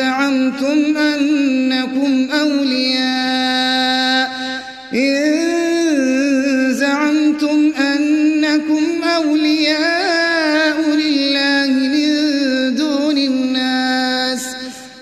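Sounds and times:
man reciting melodically: 0:00.0 - 0:15.0
breath: 0:04.4 - 0:04.9, 0:14.7 - 0:15.0.

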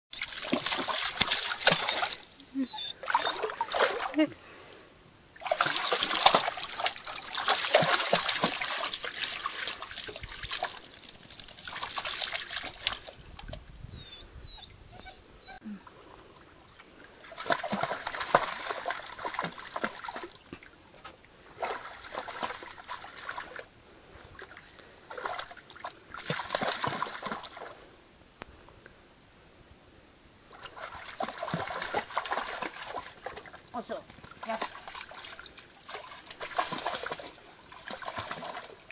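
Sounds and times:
dog splashing through water: 0:00.2 - 0:02.3, 0:03.0 - 0:04.2, 0:05.4 - 0:13.2, 0:17.3 - 0:20.4, 0:21.6 - 0:23.6, 0:25.1 - 0:27.7, 0:30.5 - 0:38.9
water trickling: 0:05.4 - 0:13.8.

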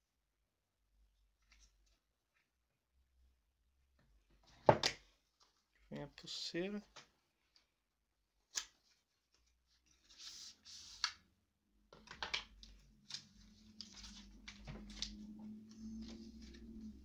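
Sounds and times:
cardboard packaging rustling: 0:12.6 - 0:17.0
low steady hum: 0:12.6 - 0:17.0.

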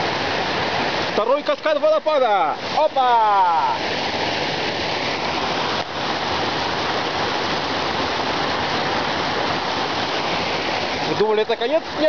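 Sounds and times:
waterfall rushing over rocks: 0:00.0 - 0:12.0.

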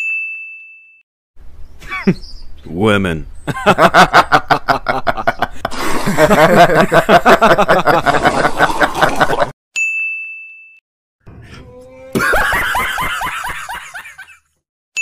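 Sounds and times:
men laughing heartily: 0:03.5 - 0:09.5, 0:12.1 - 0:14.5.

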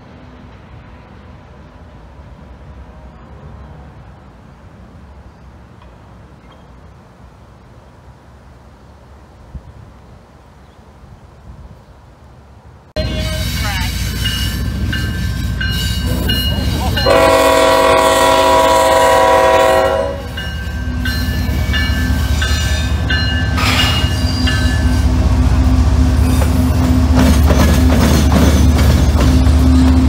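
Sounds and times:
railroad crossing bell: 0:13.0 - 0:25.1
locomotive engine drone: 0:13.0 - 0:30.0
train wheels rumbling: 0:13.0 - 0:30.0
train horn blast: 0:17.0 - 0:20.4.

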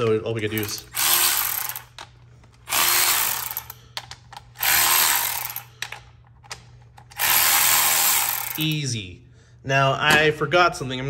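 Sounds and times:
electric ratchet running: 0:00.5 - 0:02.0, 0:02.6 - 0:03.8, 0:04.6 - 0:05.7, 0:07.1 - 0:08.8.

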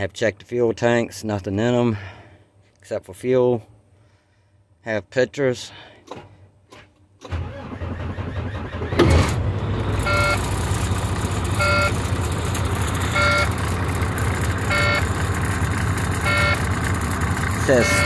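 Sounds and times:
diesel truck engine idling: 0:09.4 - 0:18.0
dashboard warning chime beeps: 0:10.0 - 0:10.5, 0:11.5 - 0:12.0, 0:13.0 - 0:13.6, 0:14.7 - 0:15.1, 0:16.2 - 0:16.7, 0:17.7 - 0:18.0.

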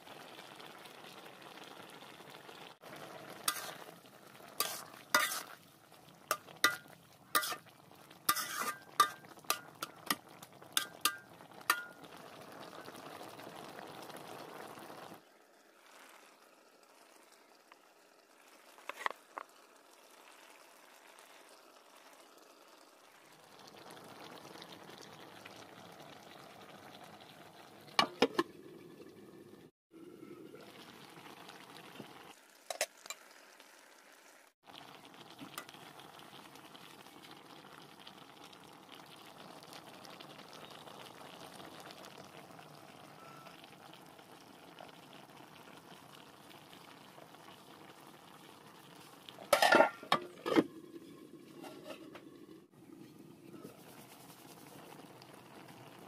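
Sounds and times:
curry bubbling in a wok: 0:00.0 - 0:56.0
metal ladle clinking on pan: 0:04.6 - 0:05.5, 0:06.3 - 0:07.7, 0:08.3 - 0:12.0, 0:49.5 - 0:50.6.

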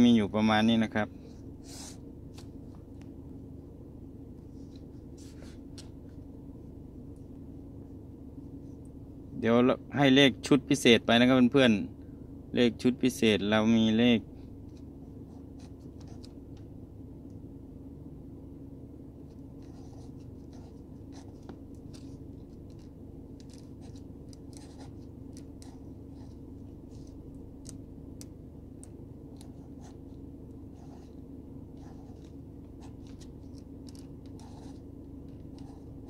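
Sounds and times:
steady low hum: 0:00.0 - 0:36.0
ballpoint pen writing on paper: 0:19.3 - 0:27.2, 0:30.7 - 0:36.0.

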